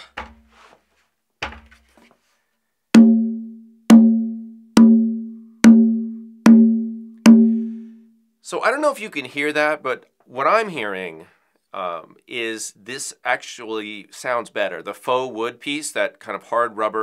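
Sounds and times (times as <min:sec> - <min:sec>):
conga drum open tones: 0:03.0 - 0:08.0.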